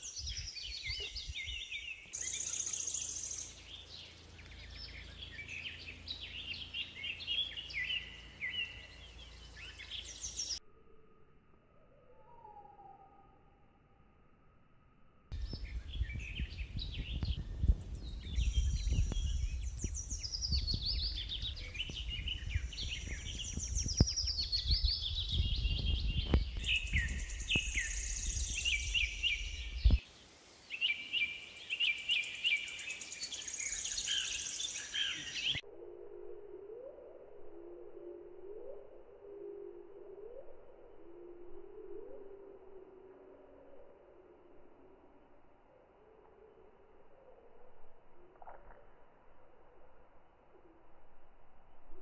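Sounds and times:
birds chirping and whistling: 0.0 - 10.6, 15.3 - 30.0, 30.7 - 35.6
steady low tone: 0.1 - 30.0, 35.5 - 52.0
low rumble: 15.4 - 30.0.

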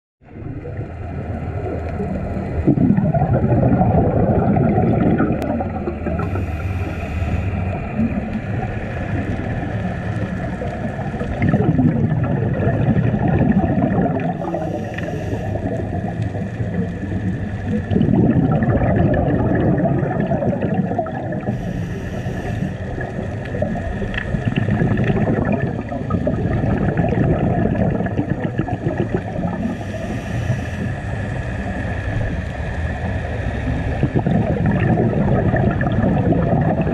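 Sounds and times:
underwater breathing bubbles: 0.3 - 36.9
faint steady drone: 5.2 - 11.4, 12.4 - 36.9
short hiss of breath: 21.6 - 22.8, 29.8 - 31.0.

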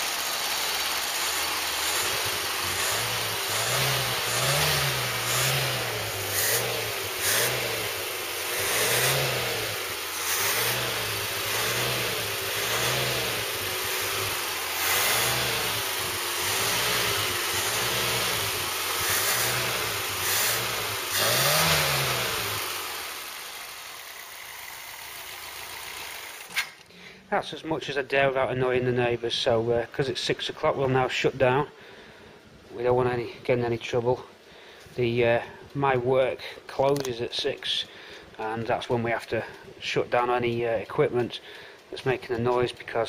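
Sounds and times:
car engine revving: 0.0 - 26.4.

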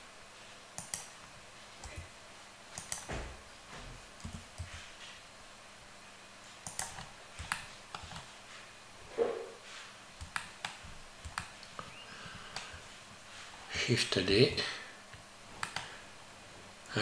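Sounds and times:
keyboard and mouse clicks: 0.8 - 1.2, 1.8 - 2.1, 2.7 - 3.1, 4.2 - 4.8, 6.6 - 8.3, 10.2 - 12.8, 15.1 - 15.9.

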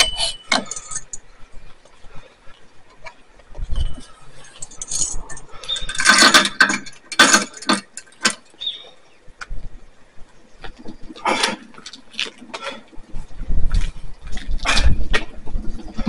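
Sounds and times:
metal sled rattling and clanking: 0.0 - 1.2, 3.7 - 8.6.

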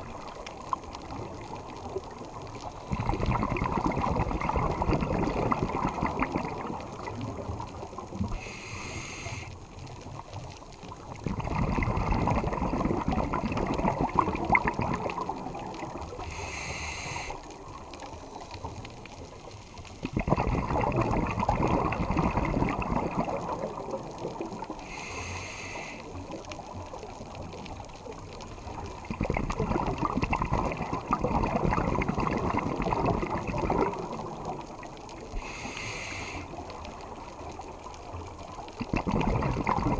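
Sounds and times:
exhaled bubbles rushing: 0.0 - 8.6, 10.1 - 16.7, 17.4 - 24.8, 26.1 - 35.6, 36.5 - 39.9
regulator inhalation hiss: 8.3 - 9.6, 16.2 - 17.6, 24.8 - 26.3, 35.3 - 36.6.

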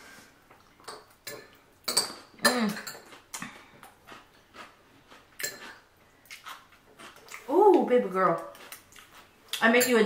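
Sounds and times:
utensils clinking on dishes: 0.8 - 3.2, 5.4 - 5.8, 9.7 - 10.0.

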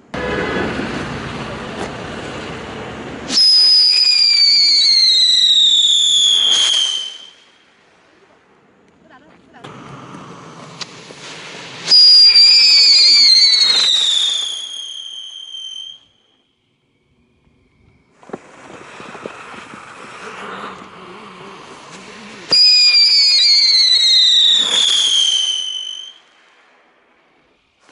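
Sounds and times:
firework whistle falling in pitch: 3.3 - 7.5, 11.8 - 16.4, 22.5 - 26.3
burning sparks hissing and crackling: 9.0 - 15.9, 18.1 - 26.6.

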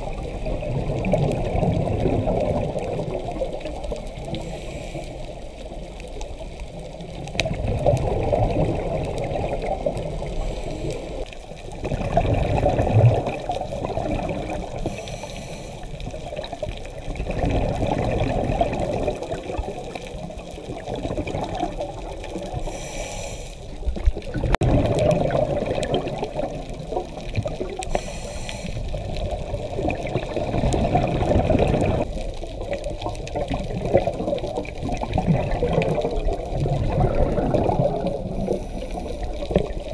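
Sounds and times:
bubbles gurgling on exhale: 0.0 - 4.5, 5.4 - 22.8, 23.7 - 28.1, 28.7 - 39.9
regulator inhalation hiss: 4.4 - 5.4, 14.8 - 16.0, 22.6 - 23.8, 27.9 - 28.9.

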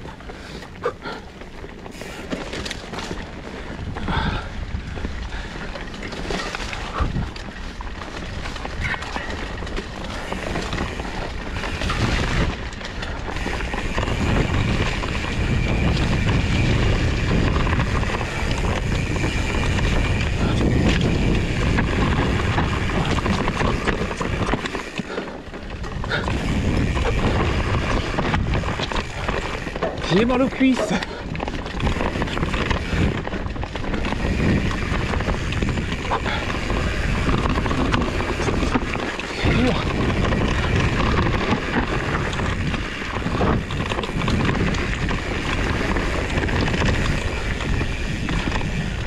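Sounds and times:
bike tyres rolling over ground: 0.0 - 49.0
wind rumble on microphone: 2.0 - 49.0.

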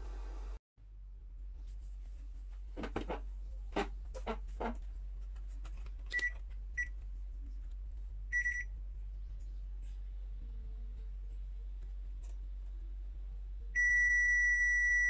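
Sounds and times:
low electrical hum: 0.0 - 15.0
multimeter high beeps: 13.8 - 15.0.

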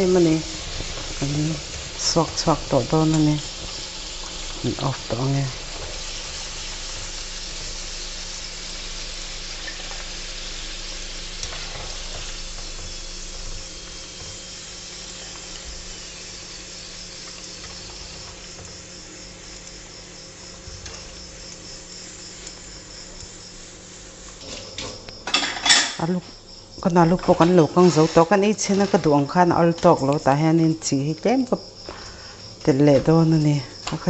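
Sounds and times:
potatoes sizzling in hot oil: 0.0 - 34.0.

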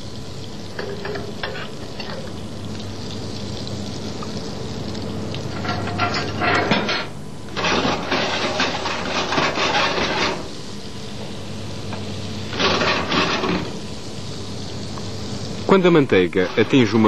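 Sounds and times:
butter sizzling in a frying pan: 0.0 - 17.0
pan scraping and rattling on grate: 0.8 - 2.3, 5.5 - 10.5, 12.5 - 13.8, 16.3 - 17.0.

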